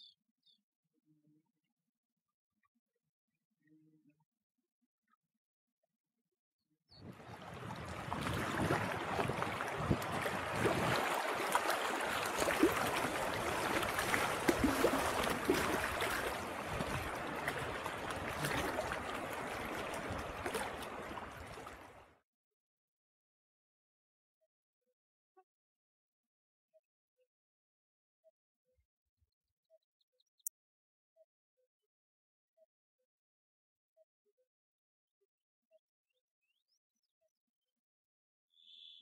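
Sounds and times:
water lapping and splashing: 0:07.0 - 0:22.0.

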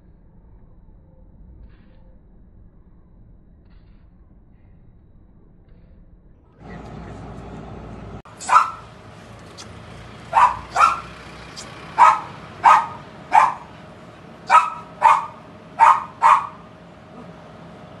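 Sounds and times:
dog barking: 0:08.4 - 0:08.9, 0:10.3 - 0:11.2, 0:11.9 - 0:13.7, 0:14.5 - 0:17.3.

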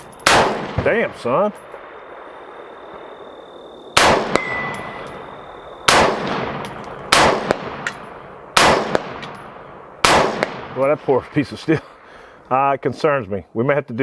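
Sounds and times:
bullet clanging on steel plate: 0:00.0 - 0:00.3, 0:04.4 - 0:05.2, 0:06.6 - 0:07.0, 0:07.8 - 0:08.2, 0:09.2 - 0:09.5
rifle shots: 0:00.0 - 0:03.3, 0:03.9 - 0:11.4.

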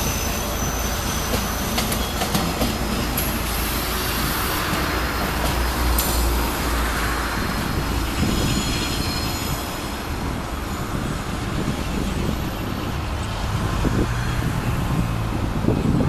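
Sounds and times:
faint high flange squeal: 0:00.0 - 0:02.4, 0:08.1 - 0:11.0
train wheels rumbling on rails: 0:00.0 - 0:16.0.

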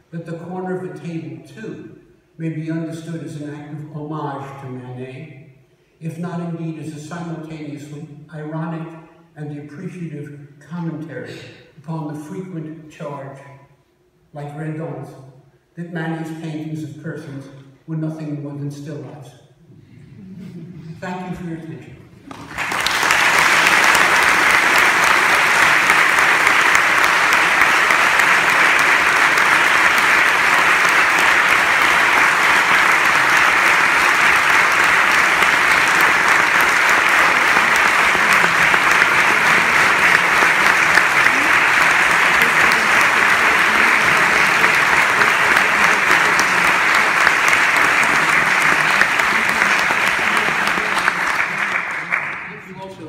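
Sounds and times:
audience applauding: 0:22.3 - 0:53.0.

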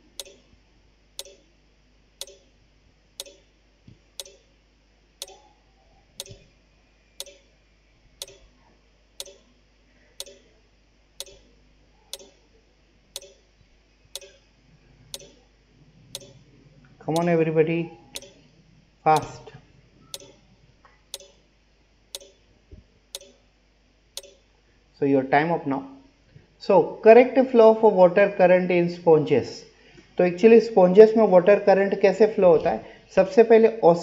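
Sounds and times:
countdown timer ticking: 0:00.0 - 0:00.5, 0:01.2 - 0:01.5, 0:02.2 - 0:02.5, 0:03.2 - 0:03.5, 0:04.2 - 0:04.5, 0:06.2 - 0:06.4, 0:07.2 - 0:07.5, 0:08.2 - 0:08.5, 0:09.2 - 0:09.5, 0:10.2 - 0:10.5, 0:11.2 - 0:11.5, 0:12.2 - 0:12.4, 0:13.2 - 0:13.4, 0:14.2 - 0:14.4, 0:15.1 - 0:15.4, 0:16.2 - 0:16.4, 0:18.1 - 0:18.4, 0:19.2 - 0:19.4, 0:20.1 - 0:20.4, 0:21.1 - 0:21.4, 0:22.2 - 0:22.4, 0:23.2 - 0:23.4, 0:24.2 - 0:24.4.

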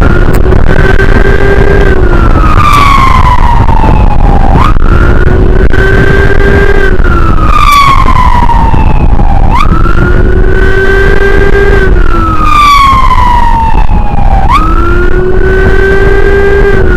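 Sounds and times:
emergency siren wailing: 0:00.0 - 0:16.9
wind and road noise: 0:00.0 - 0:16.9.

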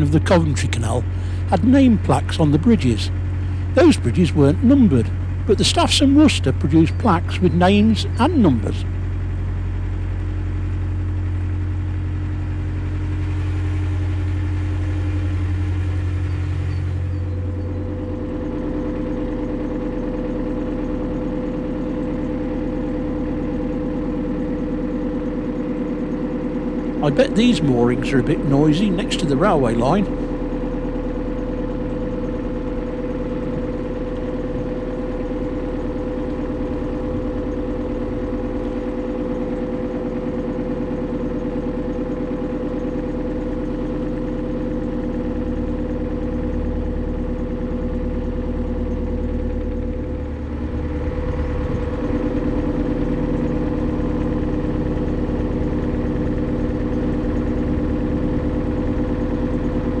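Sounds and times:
boat diesel engine running: 0:00.0 - 1:00.0.

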